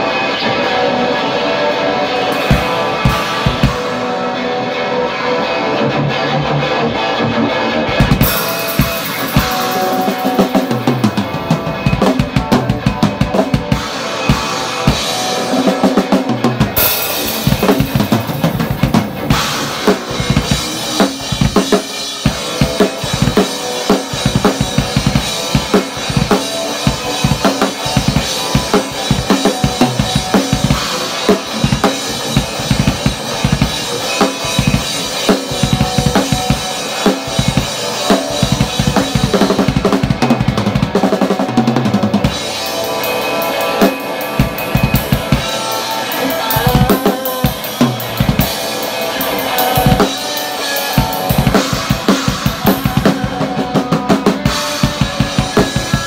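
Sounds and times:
drum kit pounding: 0.0s - 56.0s
electric guitar: 0.0s - 56.0s.

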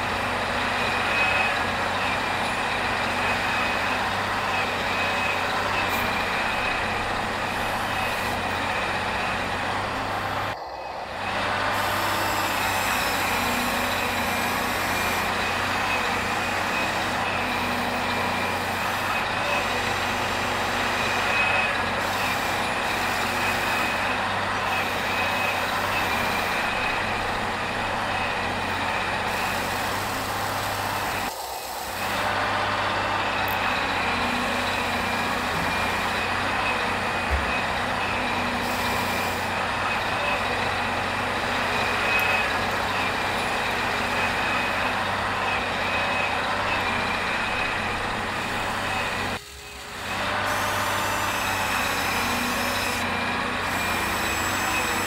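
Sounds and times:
constant high whine: 0.0s - 55.0s
mechanical drone: 4.5s - 55.0s.

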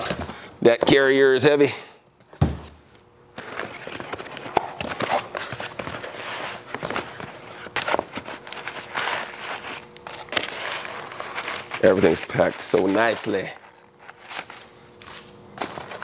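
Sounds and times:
packing paper rustling: 3.4s - 16.0s.

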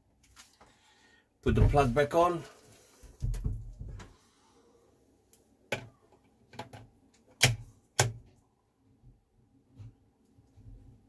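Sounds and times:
plastic plug clicks and knocks: 6.5s - 8.2s.

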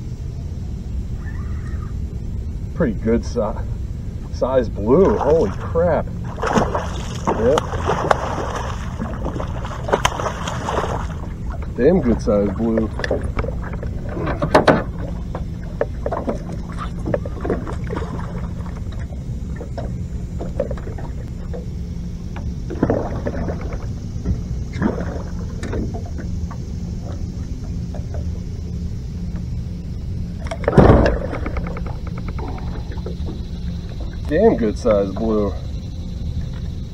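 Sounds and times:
steady low rumble: 0.0s - 36.9s
fish splashing in water: 4.9s - 21.6s.

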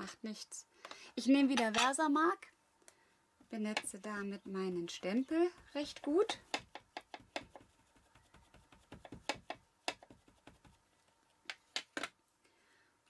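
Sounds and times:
ink pad tapping on stamp: 6.0s - 10.8s.

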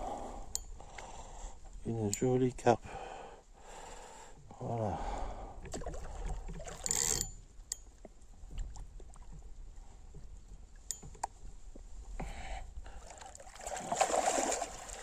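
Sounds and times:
water splashing: 13.0s - 15.0s.

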